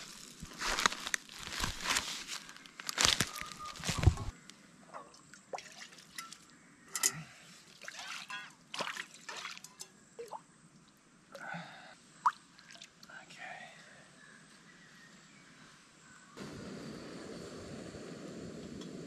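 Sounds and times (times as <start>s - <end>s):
water dripping and trickling: 5.1s - 11.4s, 12.2s - 13.2s.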